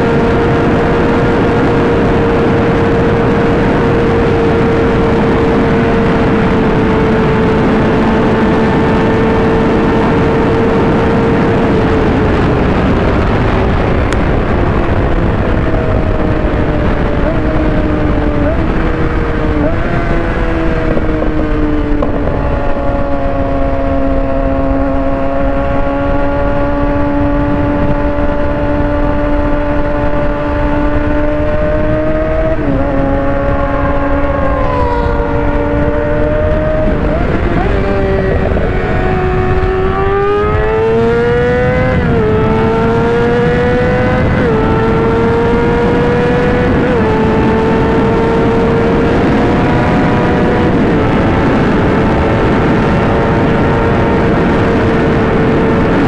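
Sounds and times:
sport bike engine revving: 0.0 - 56.0
wind rush: 0.0 - 56.0
sport bike passing: 26.1 - 56.0.

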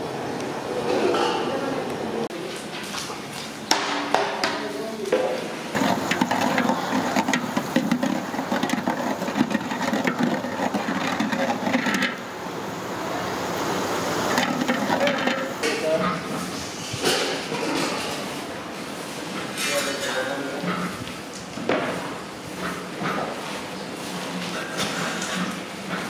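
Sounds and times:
chicken sizzling in a metal pot: 5.8 - 12.4, 13.5 - 15.8.

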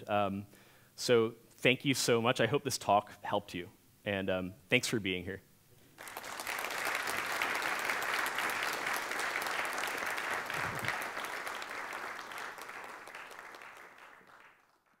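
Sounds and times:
audience applauding: 6.0 - 15.0.

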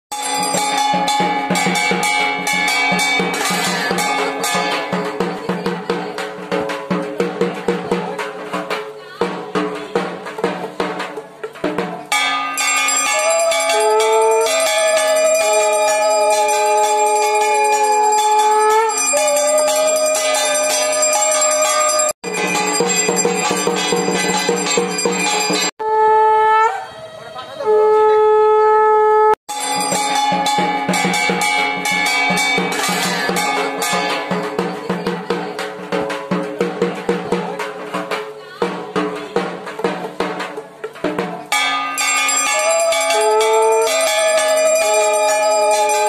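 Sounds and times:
bell ringing: 0.1 - 5.6, 12.1 - 25.7, 29.5 - 35.4, 41.5 - 46.0
fast drumming: 0.1 - 25.7, 29.5 - 46.0.

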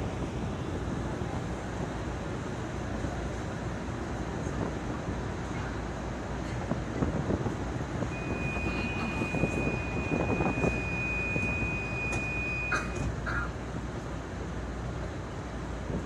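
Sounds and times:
train car din: 6.6 - 14.2
train door warning beep: 8.1 - 13.2.

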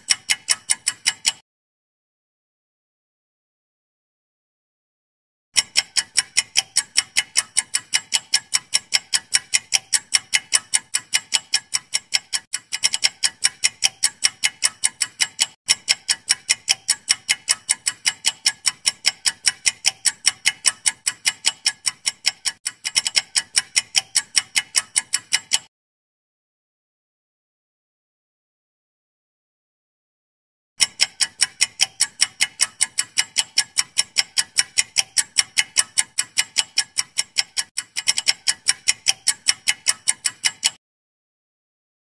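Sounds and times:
clock ticking: 0.0 - 1.4, 5.6 - 25.7, 30.8 - 40.8.

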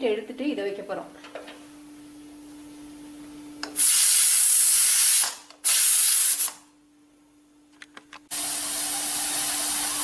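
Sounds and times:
steam hissing from pressure cooker: 3.8 - 6.6, 8.3 - 10.0.

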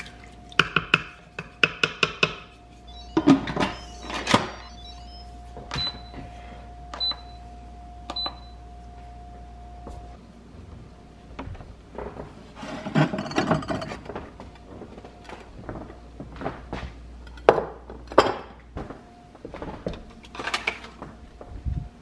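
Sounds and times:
wooden spoon knocking on metal pot: 0.6 - 2.4
short high beeps: 2.8 - 6.2.

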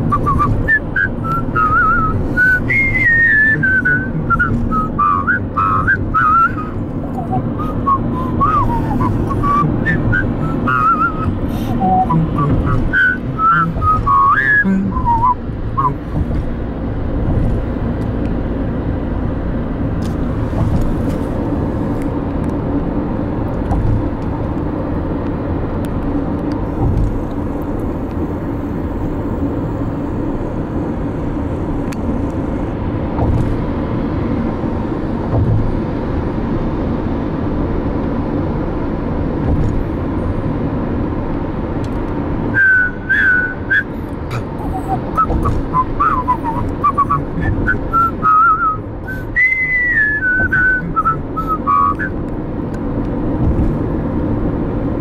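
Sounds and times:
car road and engine noise: 0.0 - 55.0
person whistling: 0.1 - 16.0, 42.5 - 52.2.

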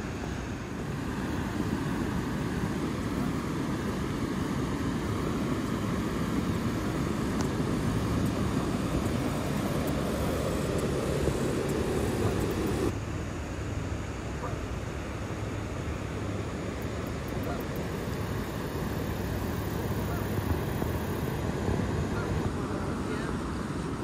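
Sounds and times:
river rushing over rocks: 0.0 - 13.0.

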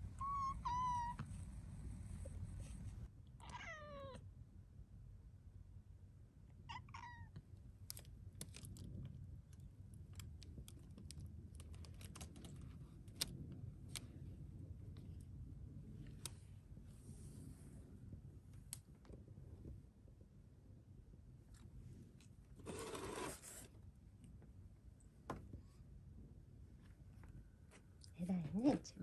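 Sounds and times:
cat meowing: 0.1 - 1.3, 3.4 - 4.2, 6.7 - 7.4.

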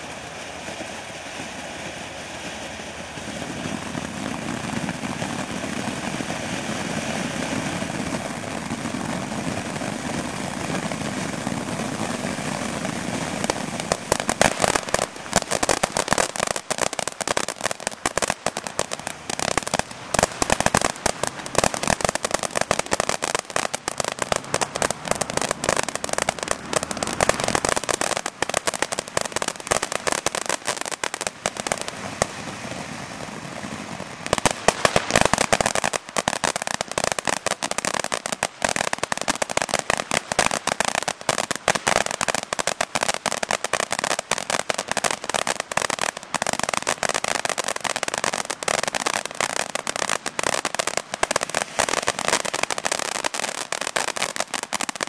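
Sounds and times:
firework crackling: 0.0 - 55.0.

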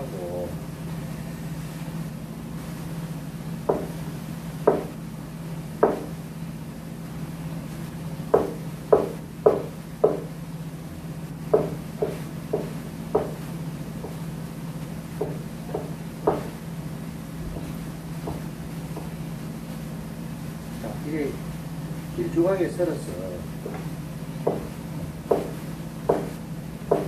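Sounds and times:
knife chopping on cutting board: 3.7 - 4.0, 4.6 - 5.0, 5.8 - 6.2, 8.3 - 10.3, 11.5 - 13.4, 14.0 - 14.2, 15.2 - 16.6, 17.4 - 19.2, 23.6 - 27.0.

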